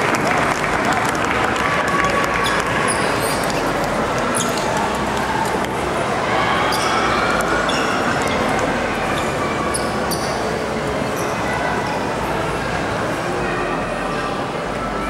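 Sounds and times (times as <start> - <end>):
crowd murmuring: 0.0 - 15.0.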